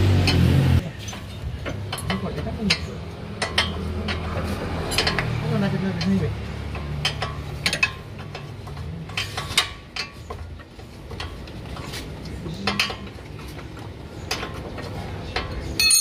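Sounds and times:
wrench clicking on metal: 0:01.1 - 0:10.2.

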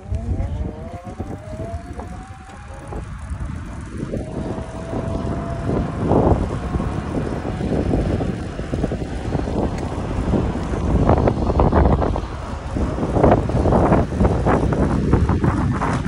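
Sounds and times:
e-bike motor whining: 0:00.0 - 0:16.0
wind rush on microphone: 0:00.0 - 0:16.0.

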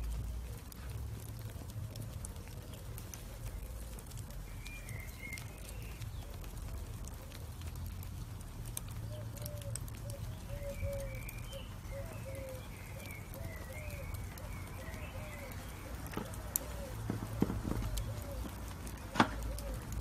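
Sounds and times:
burning charcoal crackling: 0:00.0 - 0:20.0
birds calling: 0:00.4 - 0:07.9, 0:08.8 - 0:20.0
sharp pops: 0:16.0 - 0:20.0.

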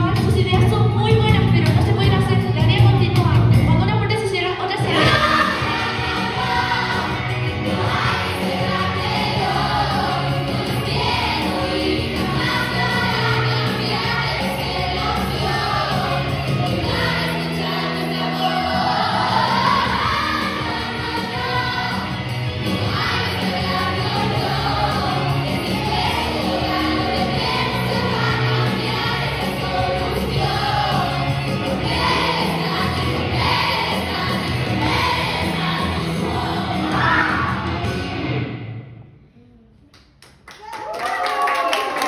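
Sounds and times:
song with vocals and bass: 0:00.0 - 0:39.7
people singing along: 0:04.7 - 0:37.9.

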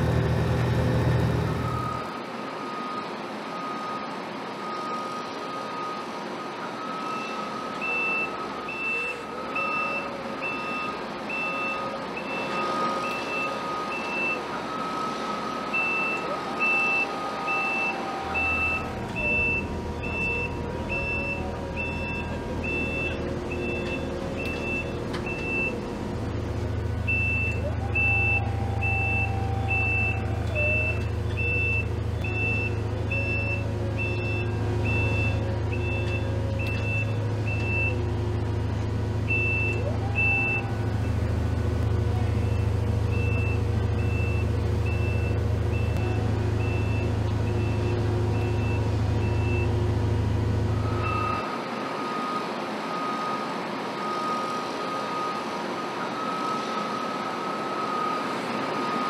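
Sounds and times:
low engine rumble: 0:00.0 - 0:02.9, 0:06.8 - 0:51.6
industrial background noise: 0:00.0 - 0:59.0
vehicle reversing alarm beeping: 0:00.1 - 0:59.0
steady high tone: 0:15.8 - 0:25.8.

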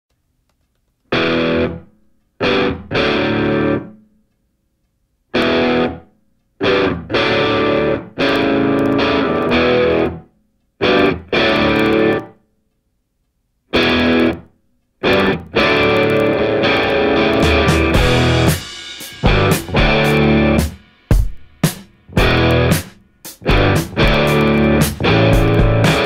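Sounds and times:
loud chord stabs: 0:15.1 - 0:26.0.

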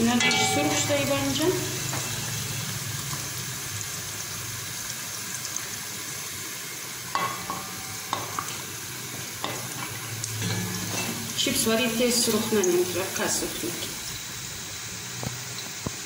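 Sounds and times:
food sizzling in hot oil: 0:00.0 - 0:16.0
spatula knocking on cookware: 0:00.2 - 0:01.2, 0:07.1 - 0:08.6, 0:09.4 - 0:09.8.

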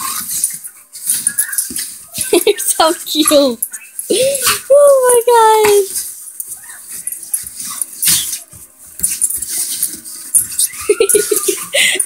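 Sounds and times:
scuffling on bedding: 0:00.0 - 0:11.7
dogs play-fighting vocal sounds: 0:06.5 - 0:08.5.

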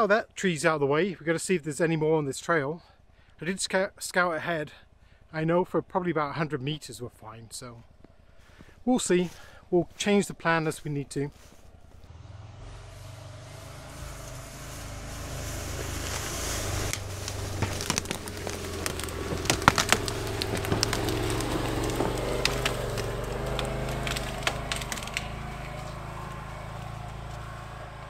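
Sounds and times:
utility vehicle engine droning: 0:10.7 - 0:28.0
branches cracking and snapping: 0:13.0 - 0:28.0.

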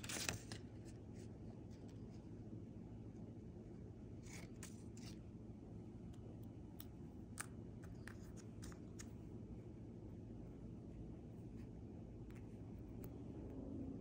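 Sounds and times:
paper rustling: 0:00.0 - 0:02.2, 0:04.2 - 0:05.2
low hum: 0:00.0 - 0:14.0.

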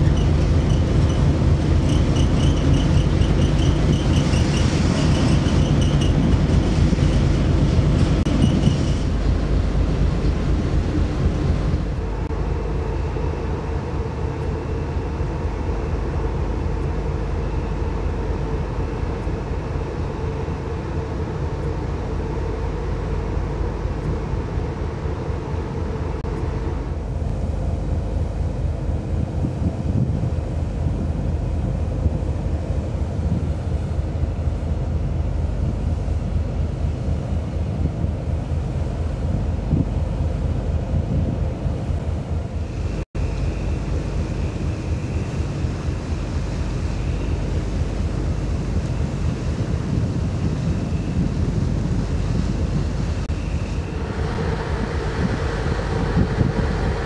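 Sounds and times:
ship machinery rumble and hum: 0:00.0 - 0:57.0
wind buffeting microphone: 0:25.8 - 0:57.0.

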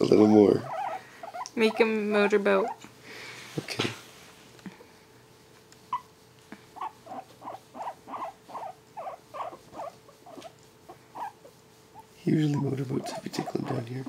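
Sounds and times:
guinea pig squeaking: 0:00.0 - 0:02.8, 0:05.9 - 0:14.0.

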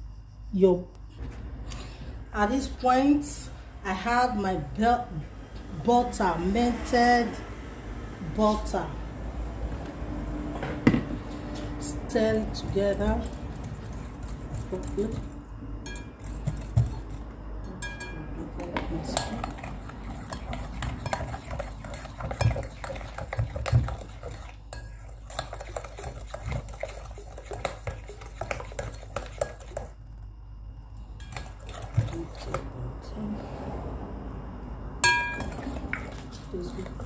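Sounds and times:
spoon clinking in porcelain bowl: 0:15.8 - 0:16.9, 0:17.7 - 0:18.4, 0:35.0 - 0:36.2.

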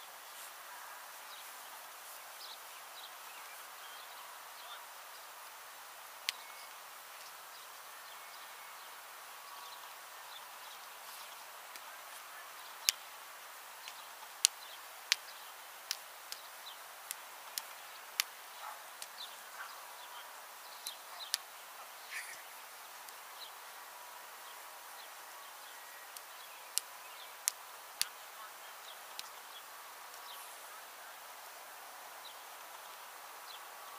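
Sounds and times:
faint steady hiss: 0:00.0 - 0:33.9
faint bird chirps: 0:00.1 - 0:05.4, 0:06.2 - 0:13.1, 0:13.8 - 0:23.8
sharp irregular clicks: 0:13.8 - 0:18.3.

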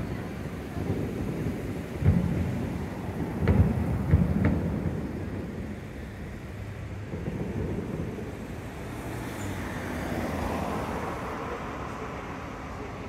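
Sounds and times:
cars driving past: 0:00.0 - 0:13.0
vehicle passing close: 0:07.2 - 0:13.0.

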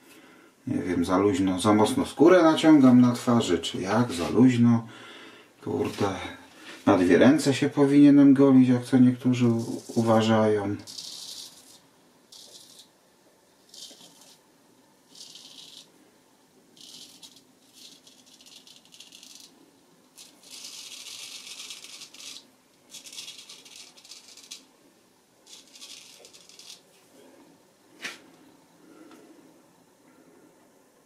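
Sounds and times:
razor scraping stubble: 0:09.4 - 0:12.9, 0:15.1 - 0:15.9, 0:16.8 - 0:19.5, 0:20.2 - 0:24.7, 0:25.5 - 0:26.8.

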